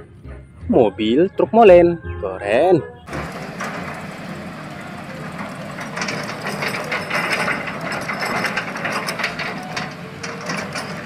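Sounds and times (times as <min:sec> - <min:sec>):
diesel engines running: 0:00.0 - 0:11.0
gravel clattering into hopper: 0:03.1 - 0:11.0.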